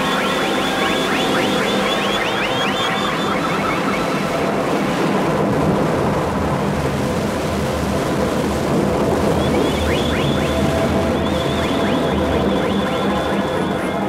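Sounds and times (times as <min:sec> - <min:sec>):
electronic music from vinyl: 0:00.0 - 0:04.3, 0:09.4 - 0:14.0.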